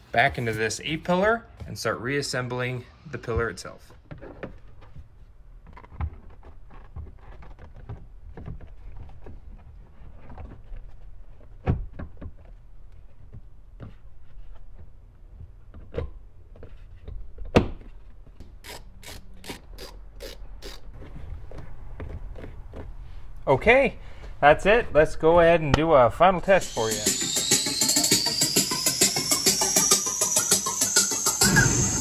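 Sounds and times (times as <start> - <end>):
plastic trim rubbing: 5.6 - 11.6.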